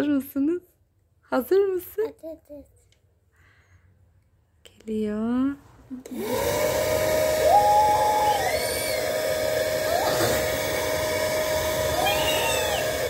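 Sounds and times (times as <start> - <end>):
airy fan rush: 6.1 - 13.0
bubble gun motor whine: 6.3 - 13.0.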